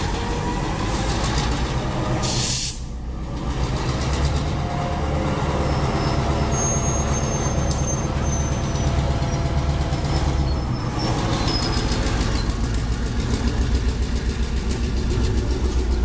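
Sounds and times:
diesel locomotive running: 0.0s - 16.0s
train wheels rolling on rail: 0.0s - 16.0s
air hiss: 2.2s - 3.0s
wheels squealing on rail: 4.6s - 12.7s.

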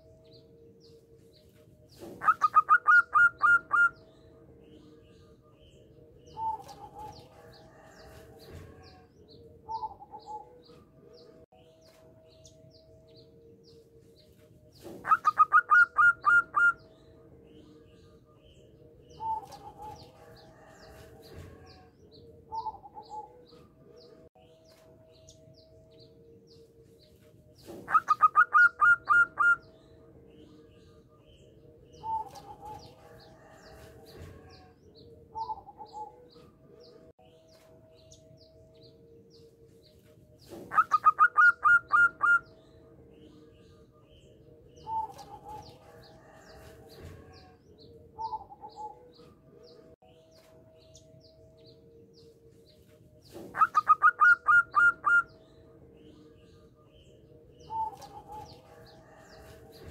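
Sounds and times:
dove cooing: 2.0s - 4.1s, 9.6s - 10.7s, 14.8s - 16.9s, 19.1s - 21.9s, 22.5s - 23.5s, 27.7s - 29.6s, 32.0s - 34.7s, 40.5s - 42.5s, 53.3s - 55.3s.

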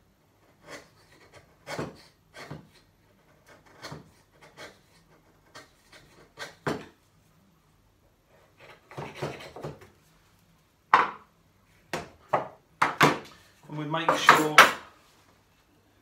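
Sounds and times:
chisel shaving wood: 0.4s - 6.8s, 8.6s - 9.8s.

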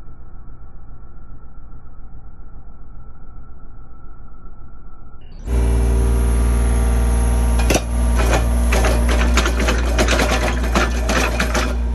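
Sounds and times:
diesel engine running: 5.4s - 11.9s
hydraulic auger drilling: 5.4s - 11.9s
clicking and clattering: 7.6s - 11.9s.

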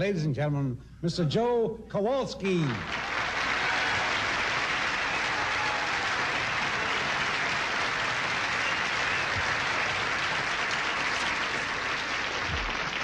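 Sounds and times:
audience applauding: 2.7s - 13.0s.

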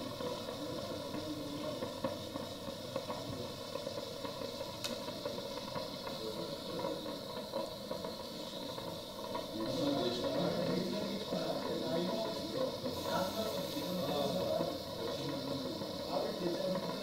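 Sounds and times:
background hum and hiss: 0.0s - 17.0s.

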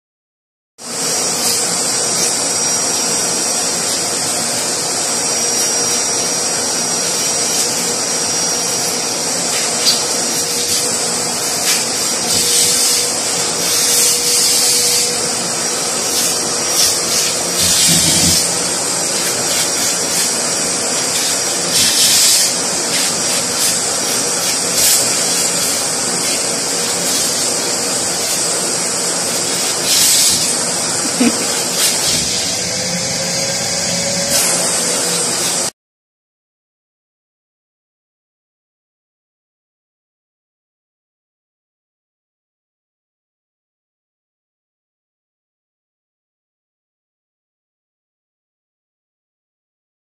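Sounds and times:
vacuum cleaner running: 0.8s - 35.7s.

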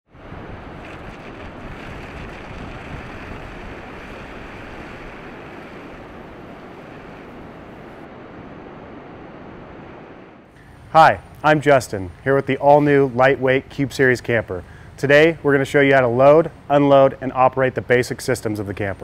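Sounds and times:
wind: 0.0s - 19.0s
ocean surf breaking: 0.1s - 10.5s.

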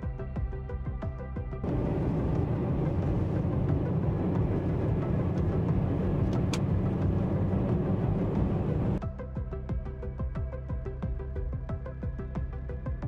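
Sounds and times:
tyre and wind rumble inside car: 1.6s - 9.0s
sharp tick: 6.2s - 7.0s.

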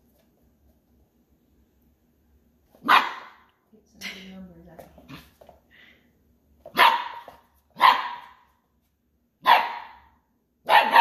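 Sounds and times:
puppy barking: 2.8s - 3.5s, 6.7s - 8.5s, 9.4s - 11.0s.

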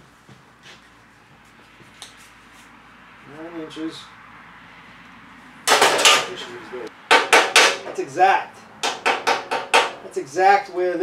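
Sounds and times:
metal pieces clanking: 5.7s - 6.4s.

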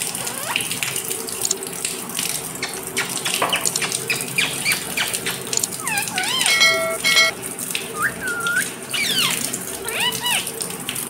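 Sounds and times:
water running and splashing: 0.0s - 11.0s
parakeet chirps: 2.6s - 7.4s, 8.3s - 10.5s.

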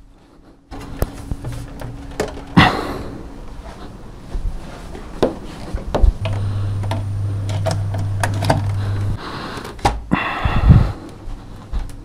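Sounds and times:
low steady hum: 0.0s - 9.5s.

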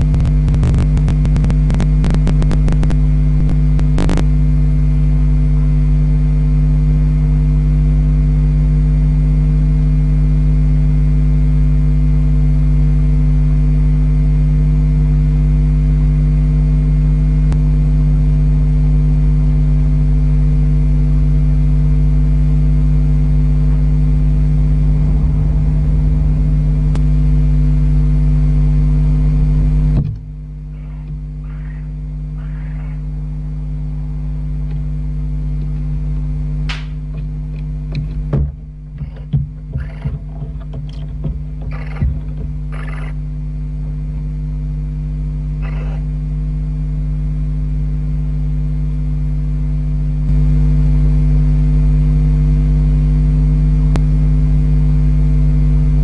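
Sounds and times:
crackling clicks: 0.0s - 4.3s
loud electrical hum: 0.0s - 56.0s.

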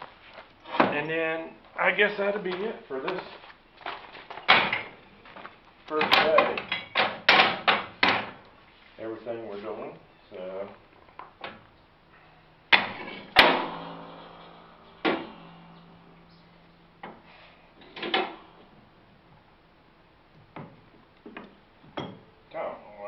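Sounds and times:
metal clanks and knocks: 6.0s - 8.4s, 12.7s - 16.3s.

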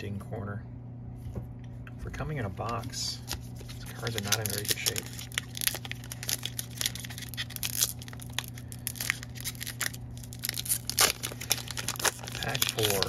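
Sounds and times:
wrapper crinkling and tearing: 3.6s - 13.0s.

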